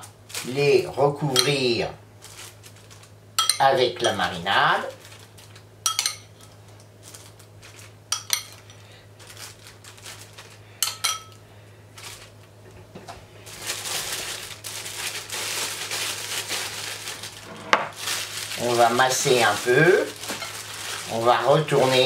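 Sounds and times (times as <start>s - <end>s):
plastic bag crinkling: 0.0s - 0.9s, 2.2s - 3.2s, 4.8s - 5.8s, 6.5s - 10.8s, 11.9s - 12.6s, 13.4s - 22.0s
metal spoon clinking on glass bowl: 3.4s - 4.2s, 5.9s - 6.3s, 8.1s - 8.6s, 10.8s - 11.4s.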